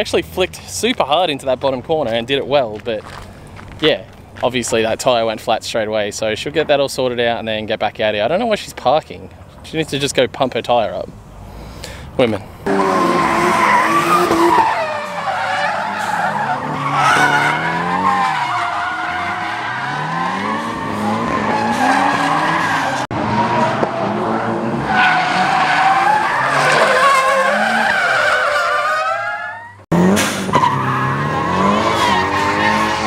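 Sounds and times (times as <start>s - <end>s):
car engine revving: 12.6s - 28.5s, 29.9s - 33.0s
tyre squeal: 12.7s - 23.8s, 30.4s - 33.0s.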